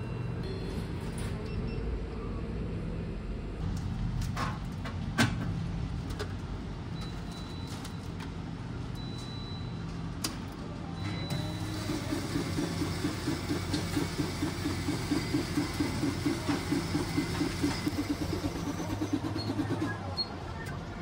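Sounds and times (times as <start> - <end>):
coffee machine running: 11.3 - 21.0.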